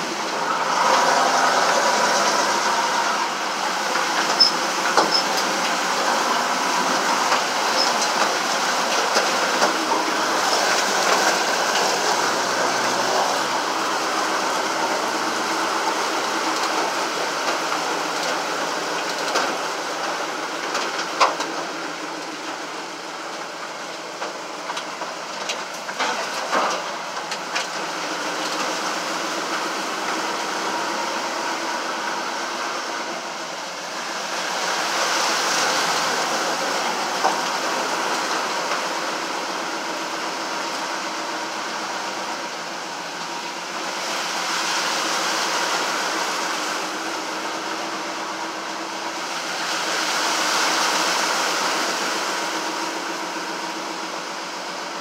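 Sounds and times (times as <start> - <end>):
vehicle engine running: 0.0 - 50.7.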